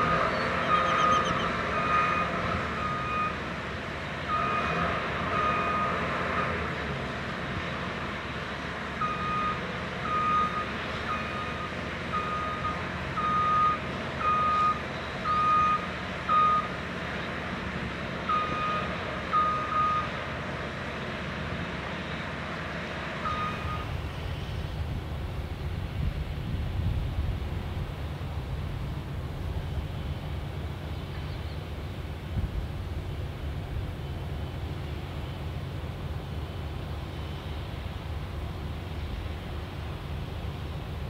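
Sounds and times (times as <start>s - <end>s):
low engine rumble: 0.0s - 41.0s
backup alarm beeping: 23.3s - 23.9s.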